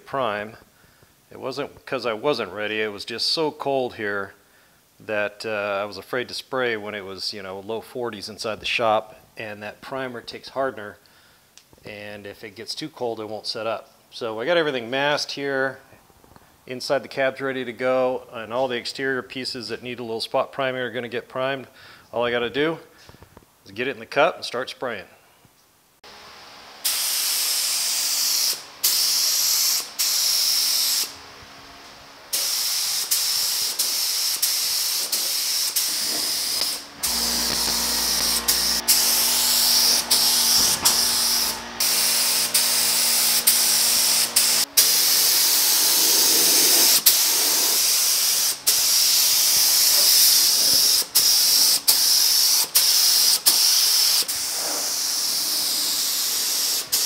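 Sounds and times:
spray gun air hiss: 0:26.8 - 0:31.2, 0:32.3 - 0:57.0.

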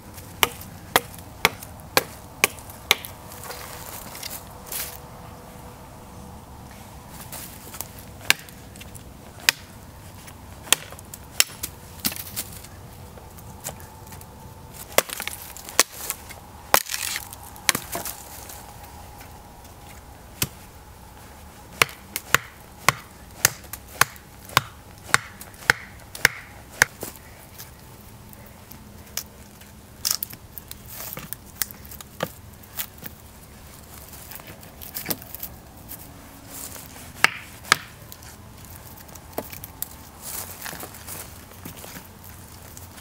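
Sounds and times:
machete chopping wood: 0:00.4 - 0:03.1, 0:08.2 - 0:08.5, 0:09.4 - 0:09.7, 0:10.6 - 0:12.2, 0:14.9 - 0:16.0, 0:21.8 - 0:27.0, 0:37.2 - 0:38.0.

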